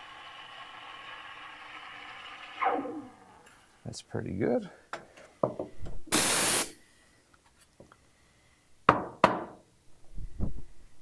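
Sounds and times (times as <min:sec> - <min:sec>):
steam wand hiss: 0:06.1 - 0:06.8.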